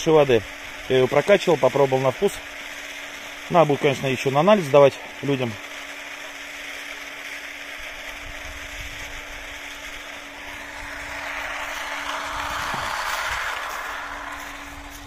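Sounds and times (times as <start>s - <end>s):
electric water pump humming: 0.0s - 15.0s.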